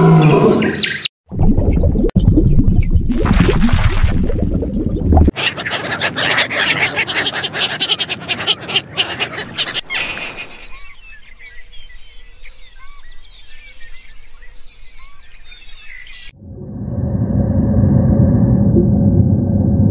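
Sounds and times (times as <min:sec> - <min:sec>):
small birds chirping and trilling: 0:05.3 - 0:16.3.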